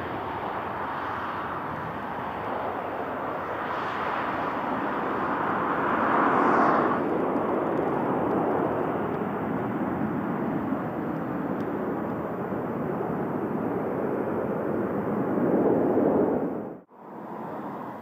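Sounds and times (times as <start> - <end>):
airliner jet engines: 0.0 - 18.0.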